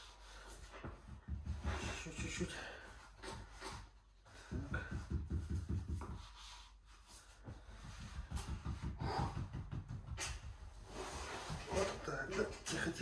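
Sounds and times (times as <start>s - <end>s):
man breathing heavily: 0.0s - 9.7s.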